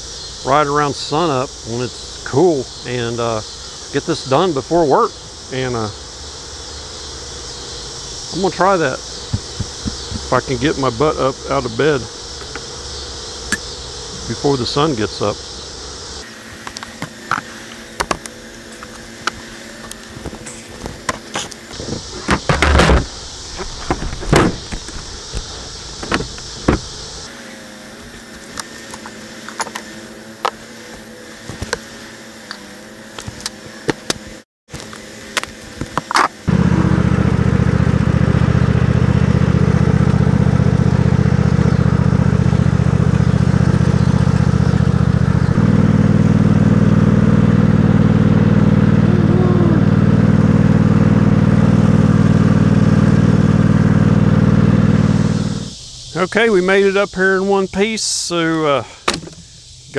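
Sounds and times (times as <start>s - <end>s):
lawn tractor engine running: 8.4s - 11.2s, 16.3s - 32.4s, 33.1s - 55.8s
wooden boxes knocking: 9.3s - 10.3s.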